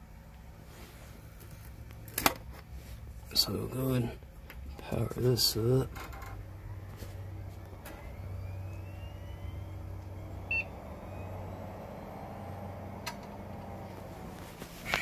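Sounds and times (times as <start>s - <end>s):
computer fan whine spinning up: 0.0s - 15.0s
computer hum: 3.2s - 15.0s
short computer beep: 10.5s - 10.7s.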